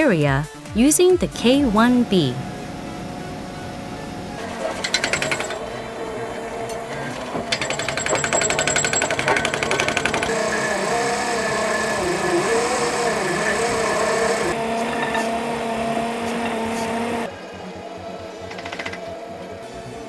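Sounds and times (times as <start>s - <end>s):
drilling machine running whine: 2.0s - 17.3s
drill head rapid hammering: 4.5s - 5.8s, 6.7s - 15.2s.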